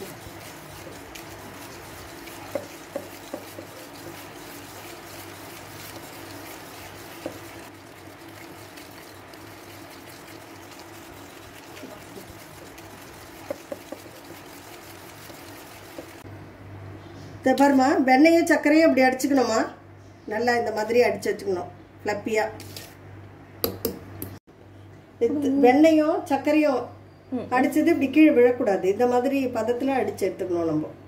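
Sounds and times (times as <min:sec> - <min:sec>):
whisk clinking against bowl: 0:00.0 - 0:16.2
whisk swishing in batter: 0:00.0 - 0:16.3.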